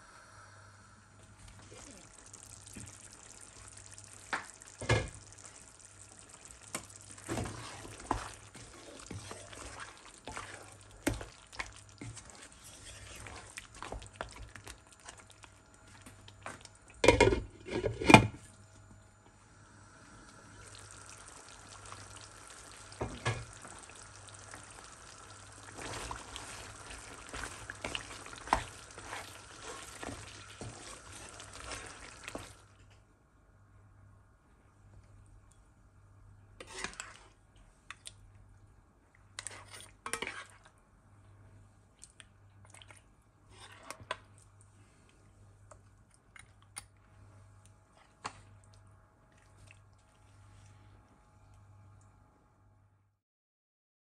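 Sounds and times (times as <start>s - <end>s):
meat sizzling in a pan: 1.5s - 15.3s, 20.4s - 32.6s
spoon stirring and scraping: 6.4s - 18.2s, 25.6s - 32.6s, 36.6s - 38.0s, 39.4s - 40.7s, 43.5s - 44.4s.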